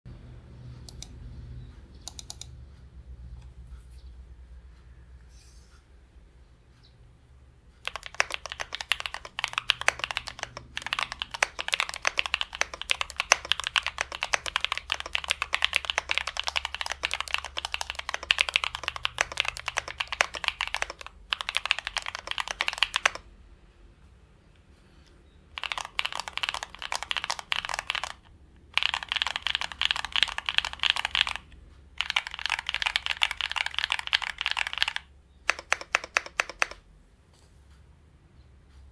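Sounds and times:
mechanical keyboard typing: 2.0 - 2.5, 7.8 - 23.3, 25.5 - 36.9.

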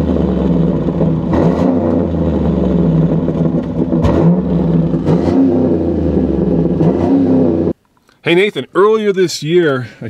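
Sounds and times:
truck engine running: 0.0 - 7.8.

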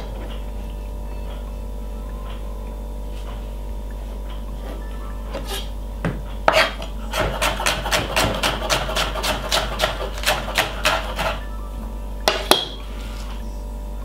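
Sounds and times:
knife chopping on wooden board: 6.1 - 11.3.

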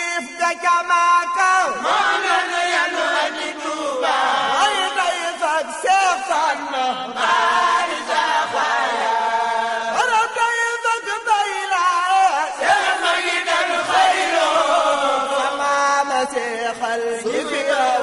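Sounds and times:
group of voices chanting: 1.8 - 5.0, 7.1 - 10.0, 12.6 - 15.6.

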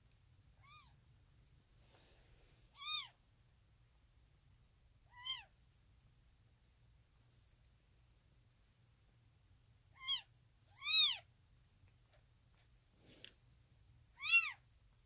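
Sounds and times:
kitten mewing: 0.6 - 0.9, 2.8 - 3.2, 5.1 - 5.5, 9.9 - 11.3, 14.2 - 14.6.

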